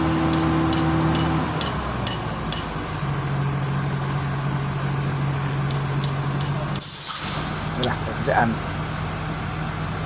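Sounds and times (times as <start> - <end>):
heavy machinery engine humming: 0.0 - 10.0
short hiss: 6.8 - 7.6.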